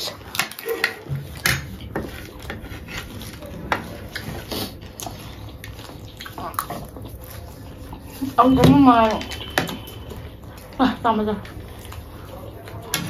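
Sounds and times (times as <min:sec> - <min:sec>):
people chewing: 0:00.0 - 0:13.0
spoons scraping on plates: 0:08.0 - 0:10.8.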